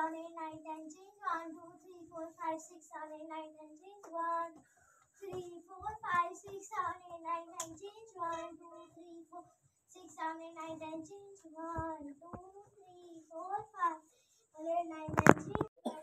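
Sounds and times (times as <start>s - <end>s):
soft low thumps: 5.2s - 8.5s, 10.1s - 12.6s.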